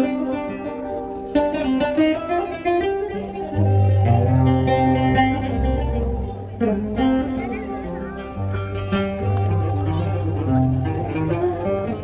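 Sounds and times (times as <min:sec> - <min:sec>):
plucked string melody: 0:00.0 - 0:12.0
deep bass: 0:03.6 - 0:07.0.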